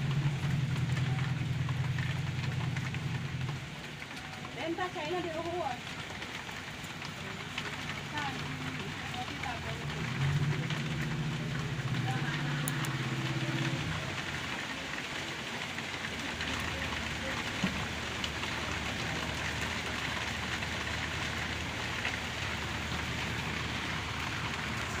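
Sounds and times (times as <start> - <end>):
faint clicks: 5.2 - 22.2.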